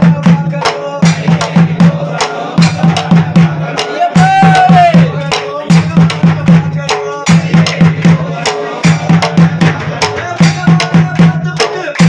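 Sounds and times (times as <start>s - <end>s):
men singing together: 0.0s - 12.0s
percussion beat: 0.0s - 12.0s
hand-clapping: 8.8s - 12.0s.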